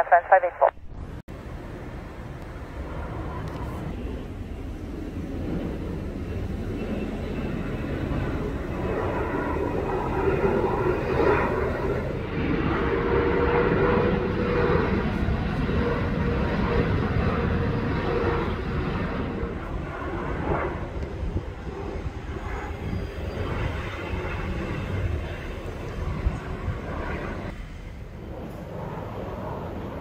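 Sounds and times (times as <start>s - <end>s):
jet engines rumbling overhead: 0.0s - 30.0s.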